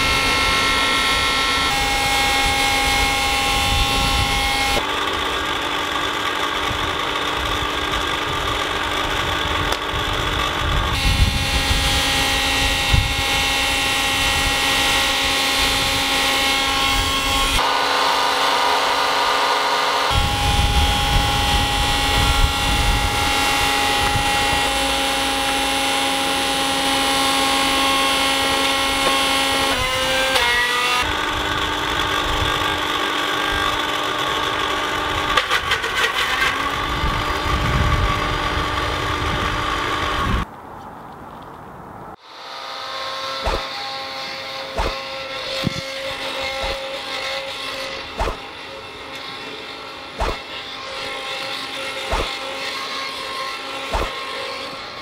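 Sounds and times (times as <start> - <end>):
electric blender motor whining: 0.0 - 40.5, 42.2 - 55.0
sharp knocks: 48.2 - 48.4.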